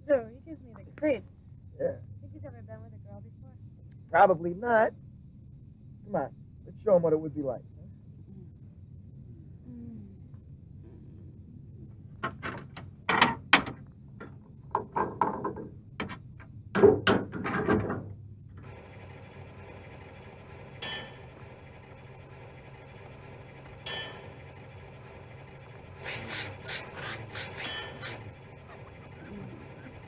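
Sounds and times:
steady low hum: 0.0 - 13.1, 17.8 - 30.0
ringing metallic clinks: 20.6 - 21.4, 23.7 - 24.5, 27.5 - 28.4
metal plate clanking and rattling: 20.7 - 21.4, 23.8 - 24.5, 26.5 - 29.1.

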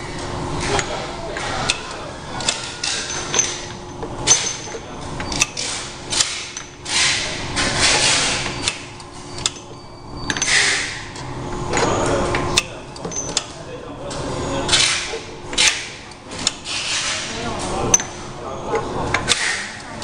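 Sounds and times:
steady low machine hum: 0.0 - 20.0.

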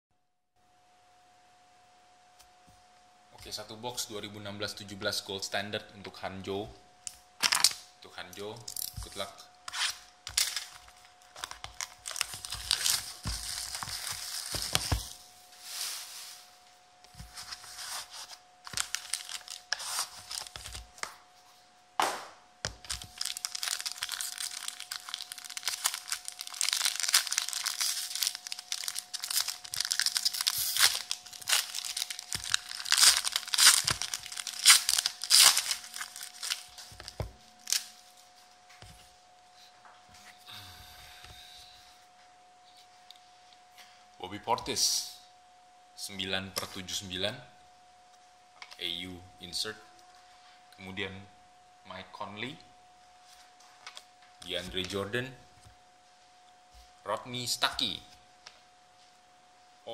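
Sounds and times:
foil wrapper tearing and crinkling: 9.7 - 15.2, 17.6 - 21.1, 22.7 - 38.0.

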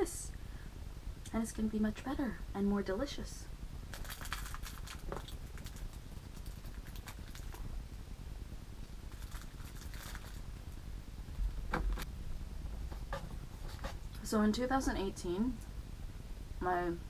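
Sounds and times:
plastic food wrapper crinkling: 3.9 - 7.8, 9.1 - 10.6.

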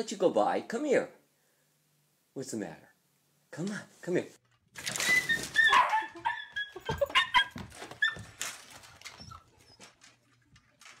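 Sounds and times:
dog whimpering: 5.4 - 8.3.

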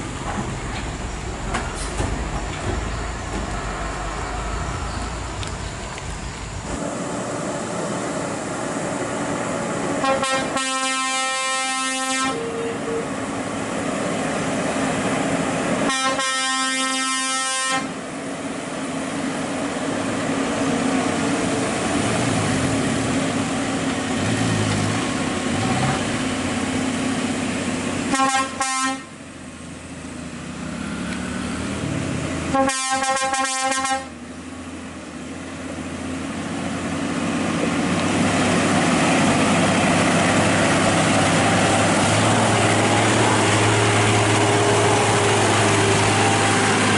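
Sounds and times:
truck diesel engine: 0.0 - 46.9
truck horn: 10.0 - 13.2, 15.8 - 18.0, 28.1 - 29.2, 32.5 - 34.2.

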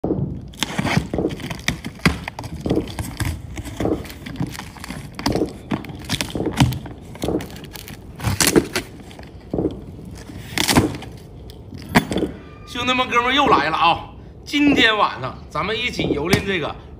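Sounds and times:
cardboard box being opened: 0.5 - 9.5.

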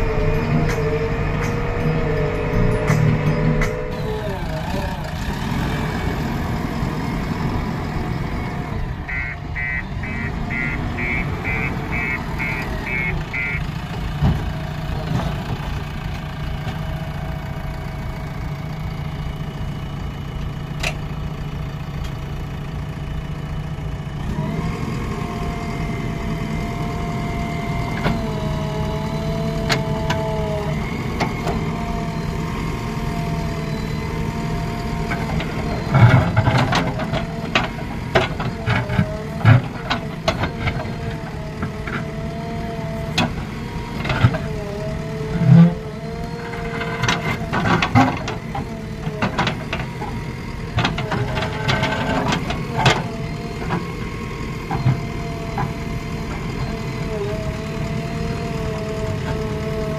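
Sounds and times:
hydraulic whine: 0.0 - 21.0, 24.2 - 59.9
diesel engine running: 0.0 - 59.9
short beeps: 9.1 - 13.6.

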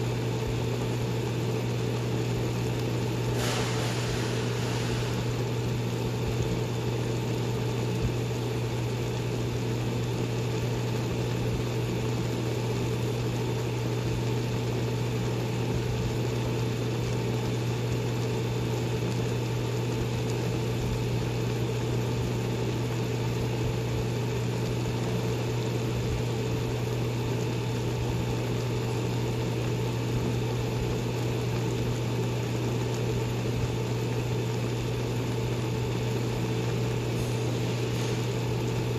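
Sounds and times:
low mechanical hum: 0.0 - 38.9.

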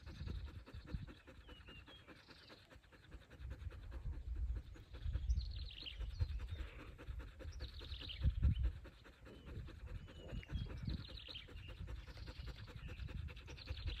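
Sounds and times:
birds chirping: 0.0 - 14.0
dog panting: 0.0 - 14.0.

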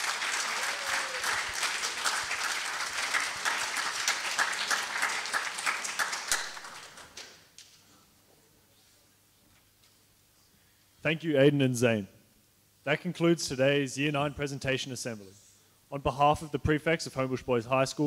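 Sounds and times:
audience applauding: 0.0 - 7.4.

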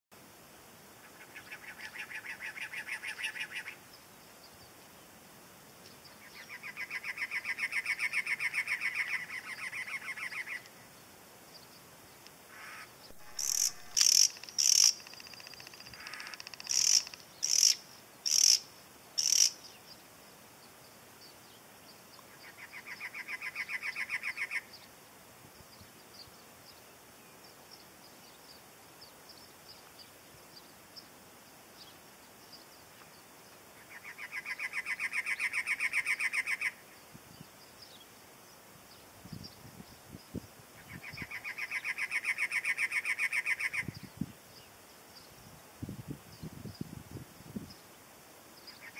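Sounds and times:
wrens singing repeated notes: 5.8 - 24.9
sharp high bird notes: 13.2 - 15.0.

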